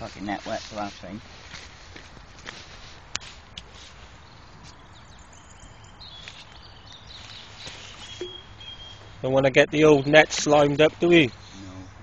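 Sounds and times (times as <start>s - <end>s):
faint high steady tone: 8.2s - 8.8s.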